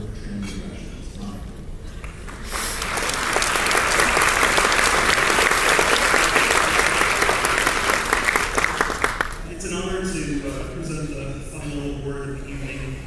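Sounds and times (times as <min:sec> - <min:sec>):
hands clapping close by: 0:02.0 - 0:09.4
audience applauding: 0:02.0 - 0:09.5.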